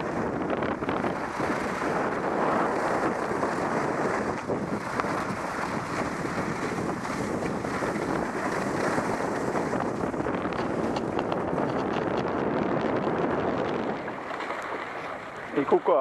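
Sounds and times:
wind rushing over microphone: 0:00.0 - 0:16.0
skis sliding on snow: 0:01.2 - 0:10.0.

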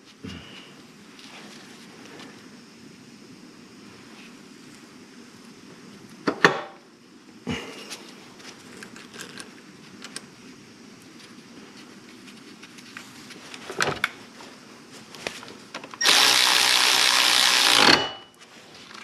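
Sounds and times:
cordless electric ratchet running: 0:16.0 - 0:18.1.

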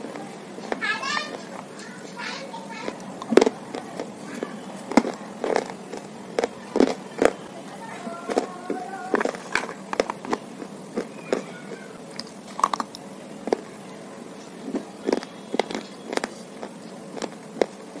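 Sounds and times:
dry crunches of biting clay: 0:02.8 - 0:07.5, 0:08.3 - 0:13.8, 0:14.6 - 0:18.0.

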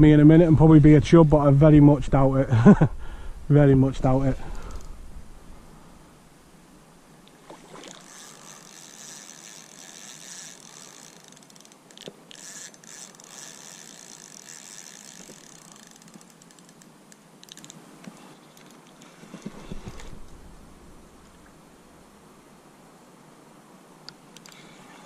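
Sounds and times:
reel clicks: 0:04.5 - 0:05.0, 0:07.2 - 0:20.4, 0:24.1 - 0:24.7
fishing reel whirring: 0:07.7 - 0:19.2.

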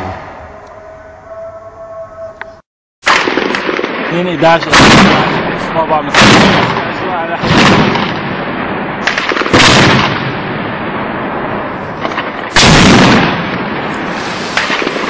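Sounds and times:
sharp cracks: 0:03.0 - 0:08.4, 0:09.0 - 0:10.4, 0:12.0 - 0:15.0
gunfire blasts with echo: 0:03.0 - 0:15.0.

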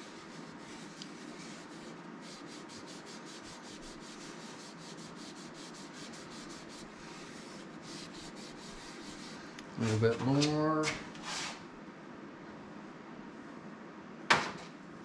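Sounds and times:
cloth rubbing on spinning wood: 0:00.0 - 0:10.6
rapid even scratching: 0:00.0 - 0:10.6.

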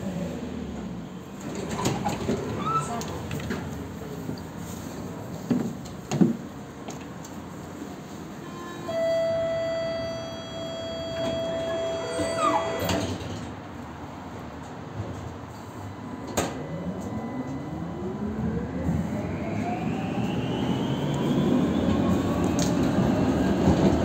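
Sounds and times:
tram running rumble: 0:00.0 - 0:24.0
tram door warning tone: 0:08.4 - 0:13.4, 0:15.6 - 0:23.9.

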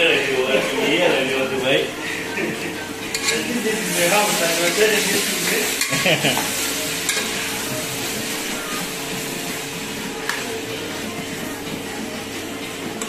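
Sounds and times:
chicken sizzling in a pot: 0:00.0 - 0:13.0
metal spoon scraping a pot: 0:03.1 - 0:03.5.

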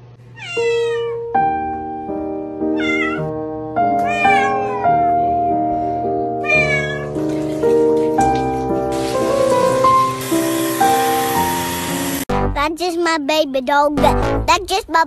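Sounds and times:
cat meowing: 0:00.3 - 0:01.3, 0:02.7 - 0:03.3, 0:04.0 - 0:05.5, 0:06.4 - 0:07.2
soft piano background music: 0:00.3 - 0:14.2.

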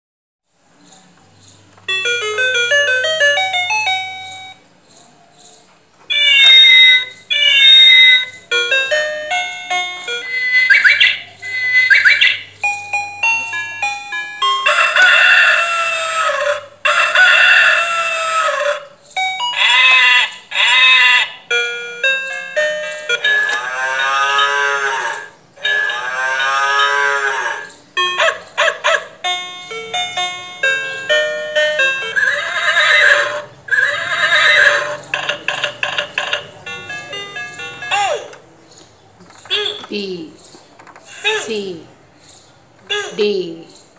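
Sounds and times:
recorded farm animal calls: 0:09.9 - 0:12.6, 0:14.6 - 0:43.9.

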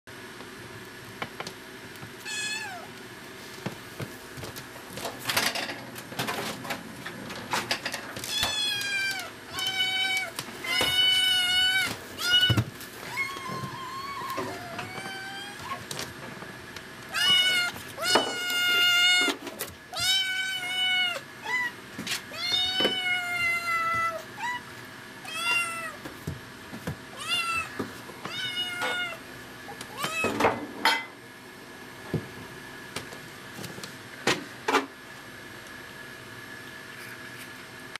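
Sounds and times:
kitten meowing: 0:02.3 - 0:02.9, 0:08.3 - 0:15.8, 0:17.1 - 0:19.3, 0:19.9 - 0:24.7, 0:25.3 - 0:26.0, 0:27.2 - 0:27.7.

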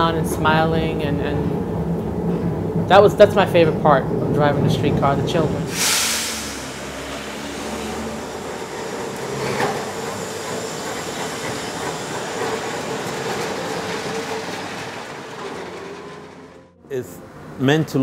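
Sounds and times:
streetcar rolling on rails: 0:00.0 - 0:18.0
streetcar knock: 0:06.9 - 0:16.8.

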